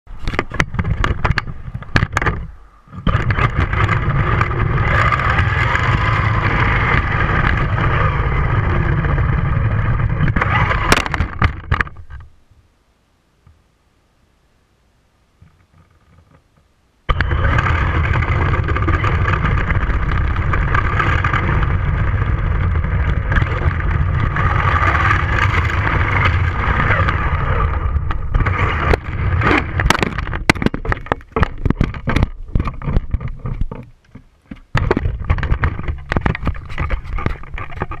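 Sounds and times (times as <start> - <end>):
knocks and clatter: 0.3 - 7.7, 28.0 - 38.0
toy truck driving fast: 3.1 - 11.6, 17.1 - 30.4
toy truck being handled: 28.2 - 38.0.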